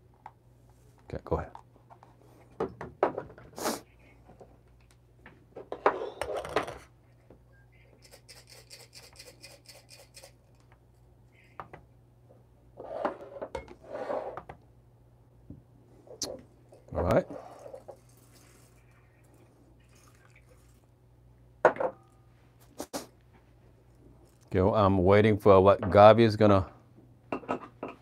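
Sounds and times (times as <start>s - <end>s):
knocks and clatter on wooden table: 2.5s - 3.5s.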